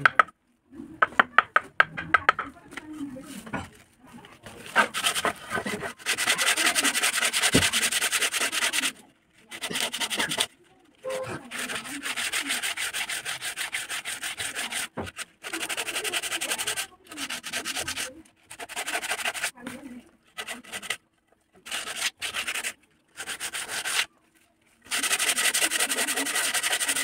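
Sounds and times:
sandpaper rubbing on wood: 4.7s - 10.6s, 11.2s - 19.6s, 20.4s - 21.0s, 21.6s - 24.1s, 24.9s - 27.0s.

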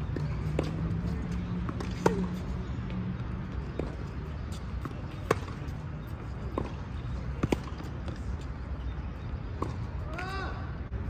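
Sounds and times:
tennis ball bouncing on court: 0.1s - 5.8s, 6.4s - 8.4s, 9.5s - 10.2s
tennis ball hit by racket: 4.8s - 5.7s.

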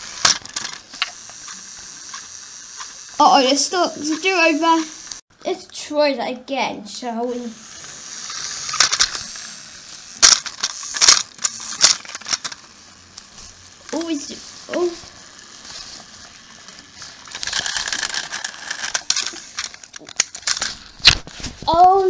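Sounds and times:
plastic toy trains handled: 0.0s - 2.9s, 7.8s - 9.5s, 10.2s - 22.0s
sharp plastic clicks: 10.2s - 13.3s.

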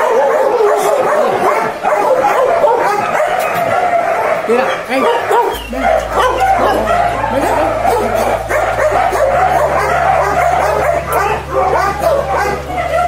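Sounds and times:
dogs barking and whining: 0.0s - 13.0s.

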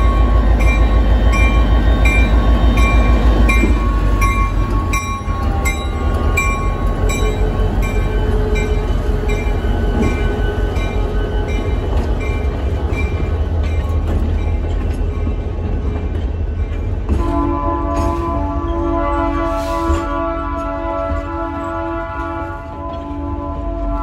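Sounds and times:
locomotive bell ringing: 0.0s - 17.1s
diesel locomotive engine rumble: 0.0s - 24.0s
railcars rolling past: 0.0s - 24.0s.

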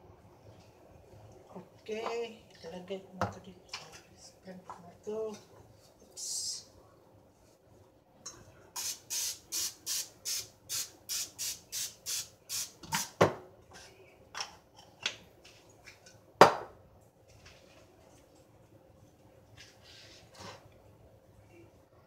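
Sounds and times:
aerosol spray squirts: 8.8s - 12.7s.

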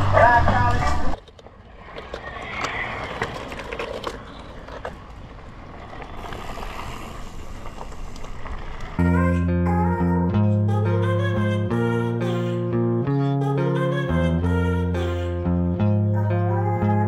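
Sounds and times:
bike tyres rolling over dirt: 0.7s - 9.1s
guitar and bass music: 9.0s - 17.0s.

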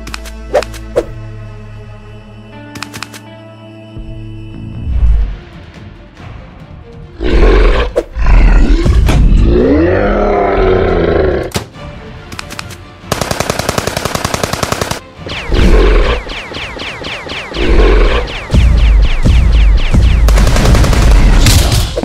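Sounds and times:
deep monster roar: 7.2s - 11.5s
rapid automatic gunfire: 13.1s - 21.9s.

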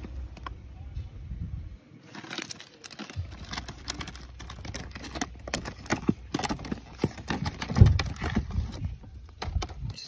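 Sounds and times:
plastic packets clicking together: 2.1s - 8.8s.

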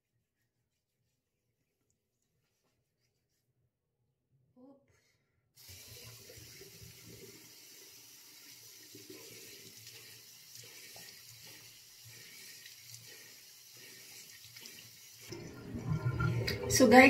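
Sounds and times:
tap water running into sink: 5.6s - 13.3s, 13.9s - 17.0s
water splashing: 8.5s - 17.0s.

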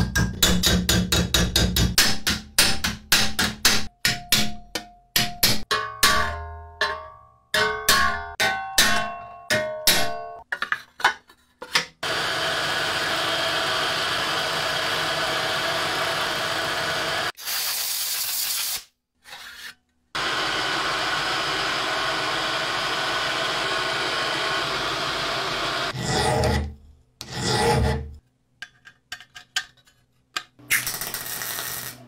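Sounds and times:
end mill cutting metal: 12.0s - 17.3s, 20.2s - 26.6s.

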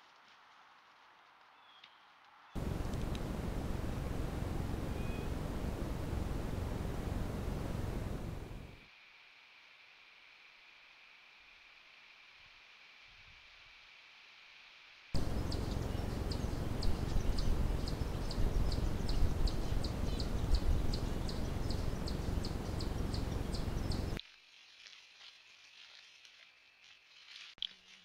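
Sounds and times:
cricket chirping: 2.6s - 8.8s, 15.2s - 24.2s
low rumbling noise: 2.6s - 8.8s, 15.2s - 24.2s.

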